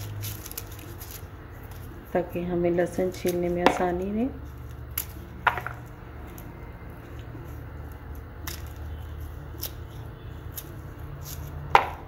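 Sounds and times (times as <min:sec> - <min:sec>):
papery garlic skins rustling: 0:00.0 - 0:12.0.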